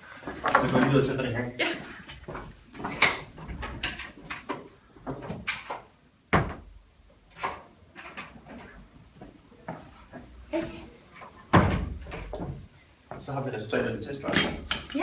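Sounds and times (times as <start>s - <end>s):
door clicks and knocks: 3.0s - 8.4s, 11.5s - 12.6s
thud: 11.5s - 12.6s.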